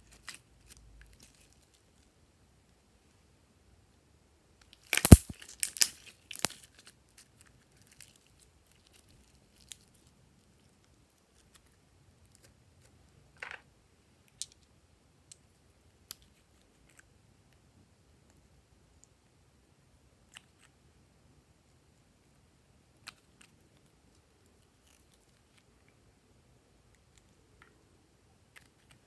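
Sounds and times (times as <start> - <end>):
slime crackling pops: 4.9 - 6.5.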